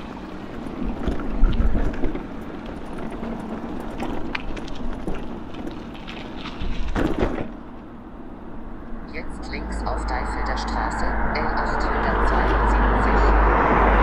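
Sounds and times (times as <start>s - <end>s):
small clicks and rattles: 0.0s - 7.6s
wind buffeting microphone: 0.0s - 14.0s.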